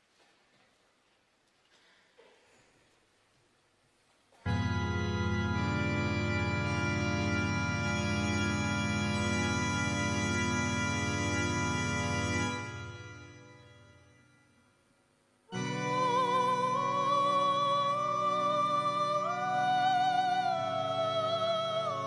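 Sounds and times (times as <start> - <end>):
loud organ chord: 4.5 - 14.4, 15.5 - 22.0.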